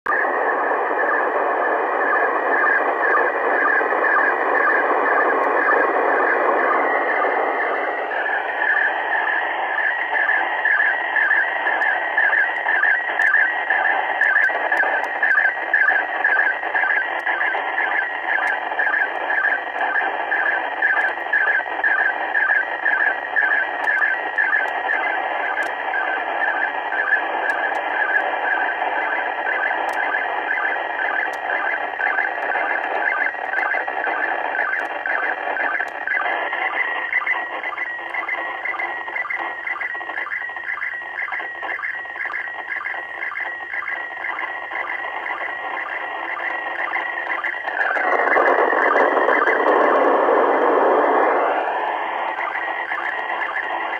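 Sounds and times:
pulsing in static: 0.1 - 53.9
radio static hiss: 0.1 - 53.9.

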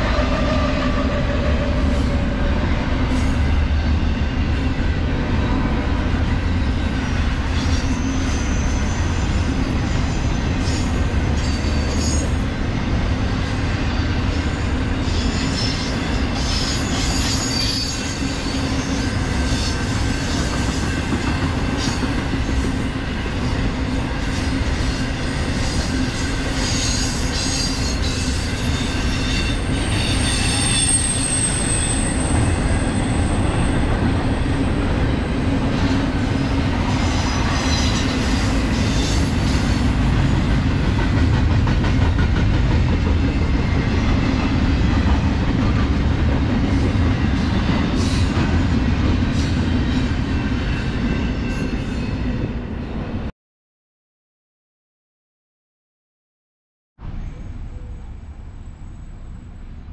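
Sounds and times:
train wheels rumbling on rails: 0.0 - 53.3
high-pitched wheel squeals: 7.5 - 12.4, 15.1 - 19.8, 26.6 - 34.6.

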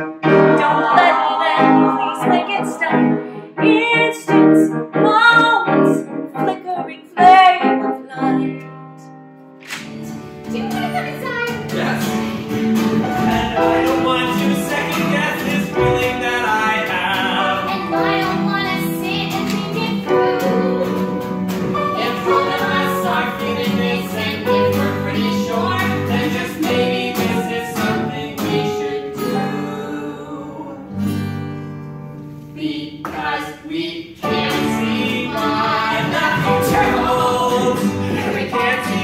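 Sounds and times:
acoustic guitar strummed: 0.0 - 4.0, 9.6 - 32.2, 34.2 - 39.0
person singing: 0.2 - 8.5, 13.4 - 21.2, 21.8 - 30.9, 34.2 - 39.0.

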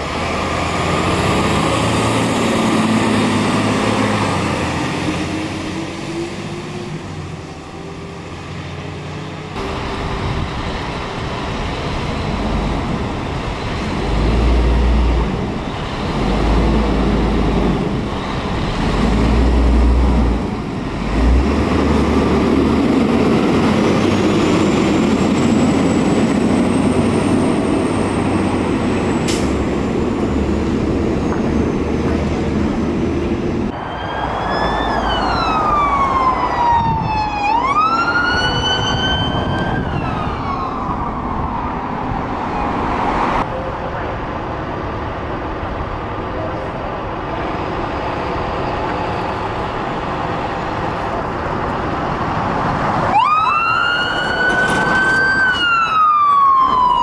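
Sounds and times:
road traffic rumble: 0.0 - 57.0
emergency vehicle siren wailing: 33.6 - 44.2, 52.1 - 57.0.

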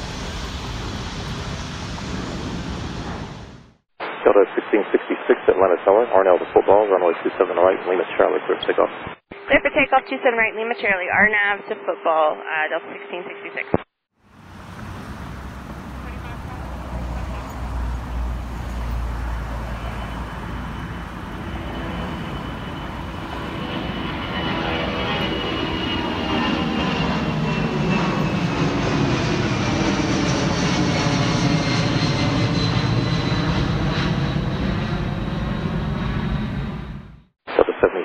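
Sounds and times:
jet airliner passing overhead: 0.0 - 3.7, 14.2 - 37.2.

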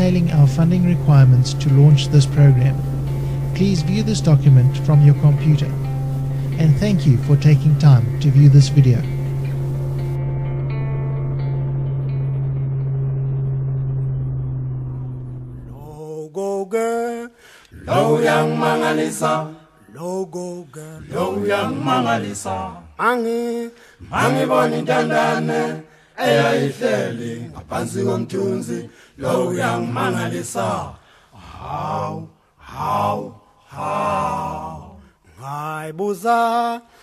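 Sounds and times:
unaccompanied choir singing: 17.7 - 22.9, 24.0 - 36.8.

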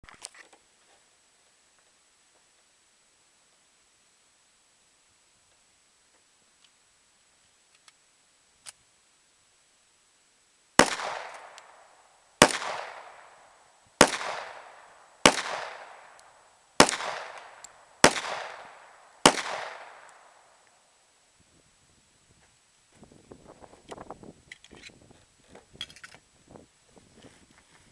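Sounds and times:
pistol shots with echo: 10.8 - 11.8, 12.4 - 16.2, 16.8 - 20.5.

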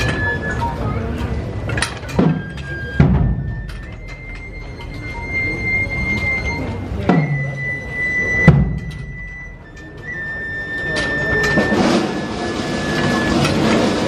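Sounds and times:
heavy drum strikes: 2.1 - 3.8, 7.0 - 7.7, 8.4 - 9.5, 11.4 - 14.0.

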